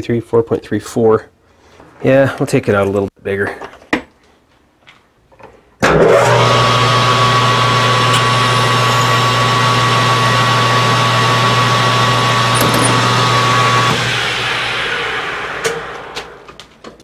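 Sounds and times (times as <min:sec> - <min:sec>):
metal lathe running: 0:06.1 - 0:16.3
drill boring metal: 0:06.1 - 0:16.4.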